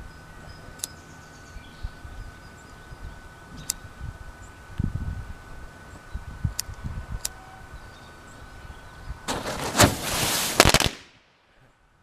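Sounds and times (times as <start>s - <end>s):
firecracker crackling burst: 9.3s - 11.5s.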